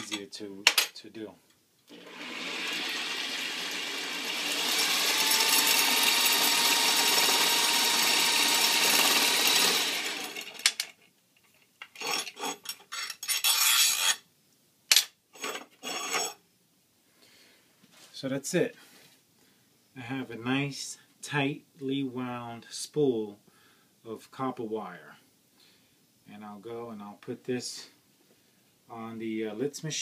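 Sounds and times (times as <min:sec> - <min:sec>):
spool spinning whirr: 0:01.9 - 0:10.6.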